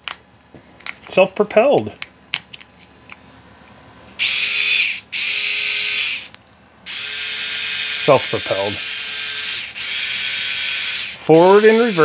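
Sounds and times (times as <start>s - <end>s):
electric screwdriver motor whine: 4.2s - 6.3s, 6.9s - 12.0s.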